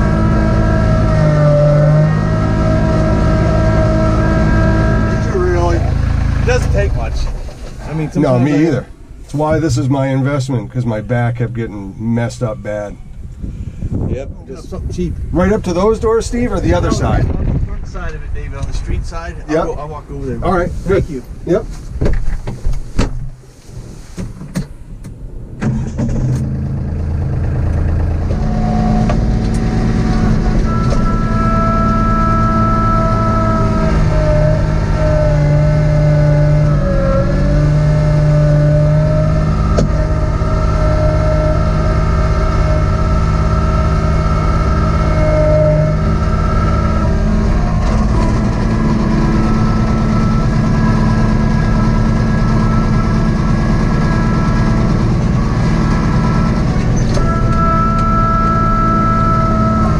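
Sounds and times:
tractor diesel engine running: 0.0 - 9.8, 23.3 - 59.9.

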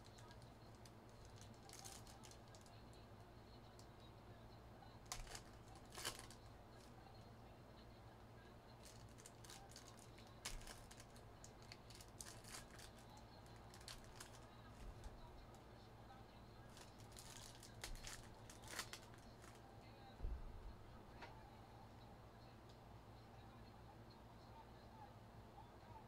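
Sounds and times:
foil wrappers tearing and crinkling: 1.2 - 2.7, 5.1 - 6.4, 8.8 - 13.0, 13.6 - 14.4, 16.7 - 19.6.

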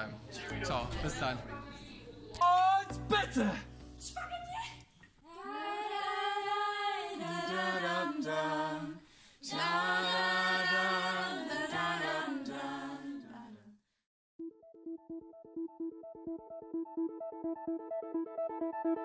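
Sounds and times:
choir singing a cappella: 5.3 - 13.8.

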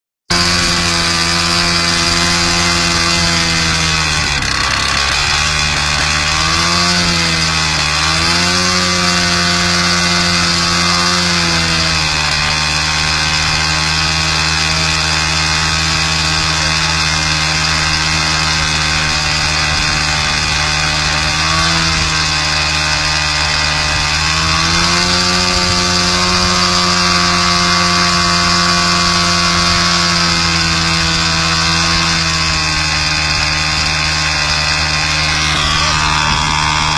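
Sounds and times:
light aircraft engine running: 16.3 - 30.0.

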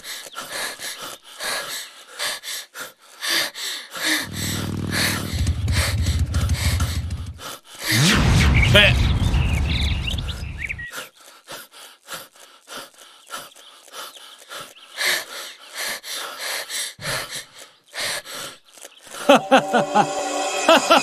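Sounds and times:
heavy panting: 0.0 - 8.0, 10.9 - 19.4
music: 19.2 - 21.0.

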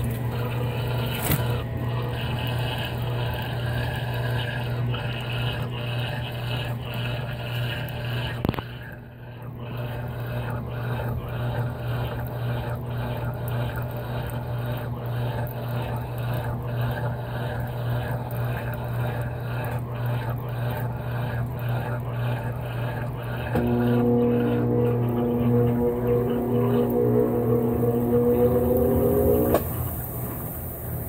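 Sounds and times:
washing machine motor hum: 0.0 - 31.0.

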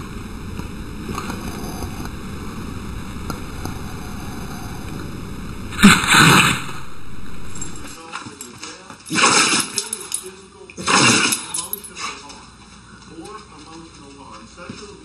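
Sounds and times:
background hiss: 0.0 - 8.1
dog sneezing: 10.8 - 11.5.

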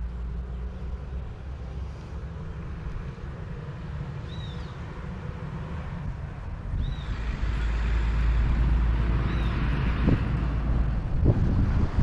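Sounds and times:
bird chirp: 4.2 - 4.8, 6.8 - 7.3, 9.2 - 9.7
wind buffeting microphone: 6.0 - 12.0.

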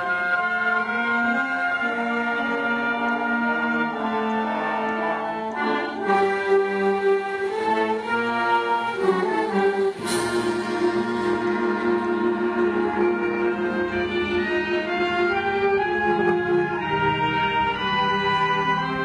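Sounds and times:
wind band playing: 0.0 - 19.0
cymbal crash: 9.9 - 13.1.

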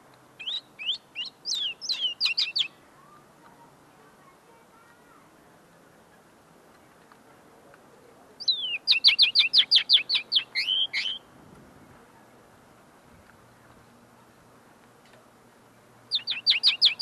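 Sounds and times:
linnet singing: 0.4 - 3.2, 8.4 - 11.3, 16.1 - 17.0.

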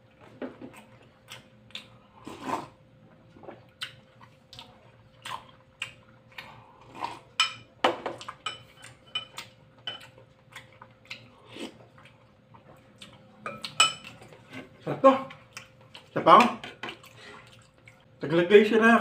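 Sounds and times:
spoon clinking against glass bowl: 8.4 - 10.0, 13.5 - 14.1.

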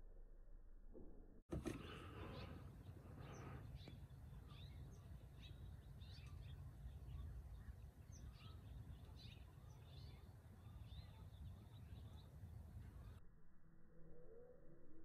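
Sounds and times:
faint birds chirping: 1.5 - 13.2.

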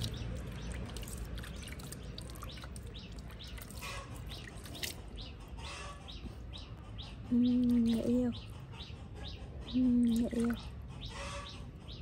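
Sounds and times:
water dripping and splashing: 0.0 - 5.4, 10.0 - 10.7
small birds chirping: 0.0 - 12.0.

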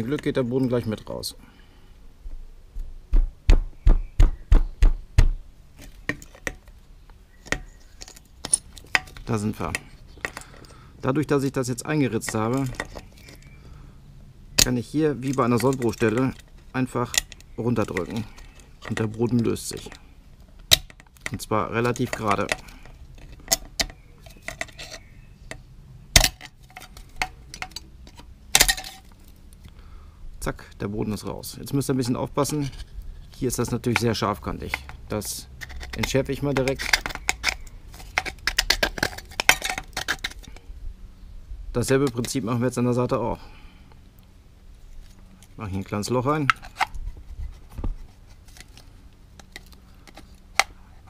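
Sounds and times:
light clicks and scrapes: 21.2 - 25.6, 32.0 - 40.7, 44.8 - 51.0.

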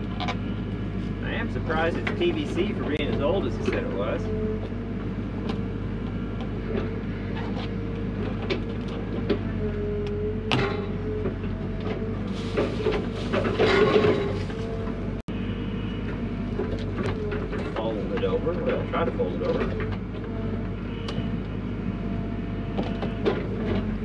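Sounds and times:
excavator diesel engine running: 0.0 - 24.0
bucket clanking in rocky soil: 12.3 - 14.6.

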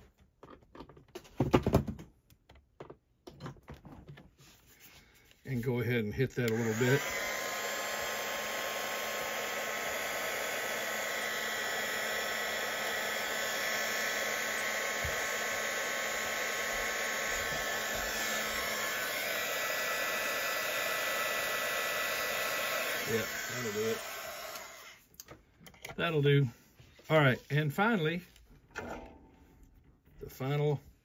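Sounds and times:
heat gun blowing hot air: 6.3 - 25.0
faint motor whine: 6.7 - 25.0.

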